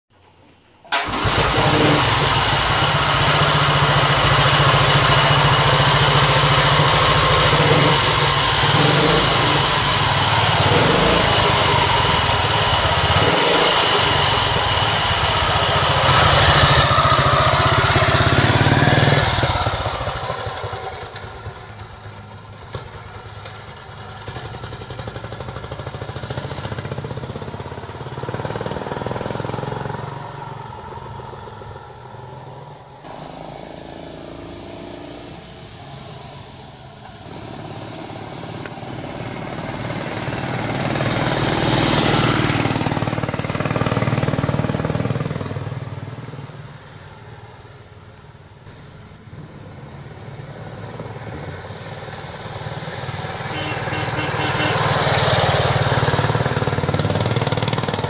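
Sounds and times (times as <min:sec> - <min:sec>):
motorcycle kick-start: 0:00.2 - 0:26.8
motorcycle engine running: 0:01.0 - 0:31.8, 0:38.6 - 0:46.4, 0:50.9 - 0:58.0.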